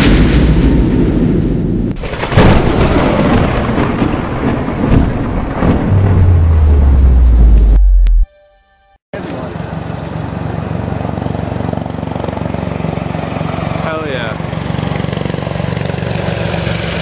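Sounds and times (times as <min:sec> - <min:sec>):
loud low rumble: 0:04.4 - 0:08.3
sudden hit: 0:04.8 - 0:08.6
deep steady low hum: 0:05.5 - 0:08.9.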